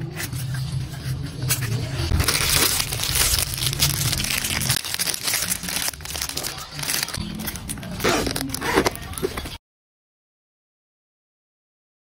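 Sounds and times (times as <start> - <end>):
plastic wrap crinkling: 2.0 - 9.6.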